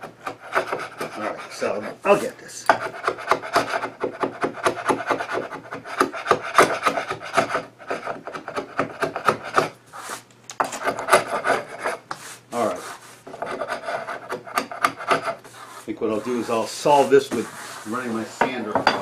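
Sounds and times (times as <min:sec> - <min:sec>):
chisel scraping glue off wood: 0:13.3 - 0:19.0.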